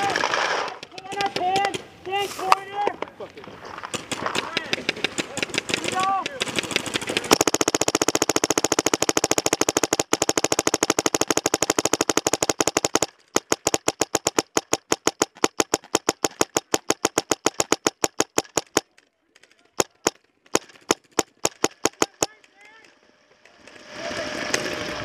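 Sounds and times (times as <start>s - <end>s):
paintball marker rapid firing: 3.9s - 19.0s, 19.8s - 22.4s.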